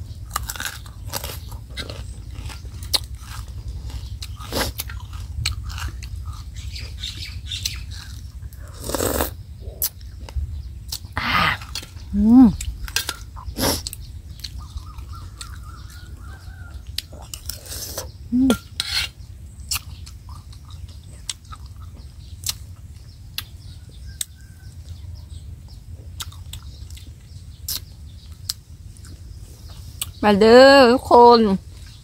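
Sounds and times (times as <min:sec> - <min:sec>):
crunchy chewing: 0:00.0 - 0:30.2.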